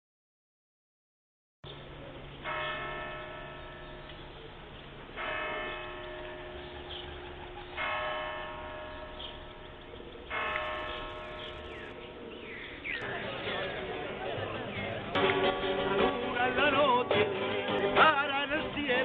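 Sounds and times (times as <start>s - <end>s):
church bell tolling: 2.4s - 16.8s.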